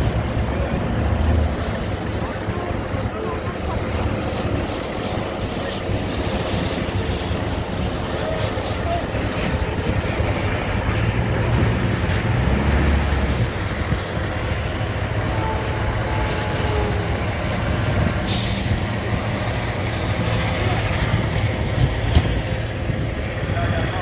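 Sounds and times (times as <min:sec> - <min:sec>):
broad rushing noise: 0:00.0 - 0:24.0
fire truck engines rumbling: 0:00.0 - 0:24.0
hiss: 0:18.2 - 0:19.0.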